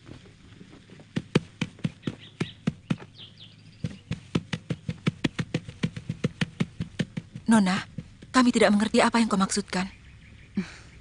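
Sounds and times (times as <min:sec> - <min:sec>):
horse hooves clip-clopping: 0:00.0 - 0:08.6.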